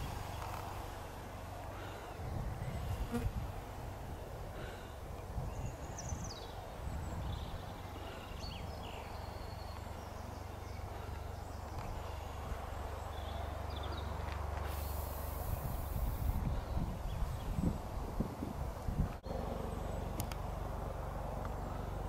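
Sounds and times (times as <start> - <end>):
birds chirping: 4.6 - 18.0
burst of hiss: 14.6 - 16.4.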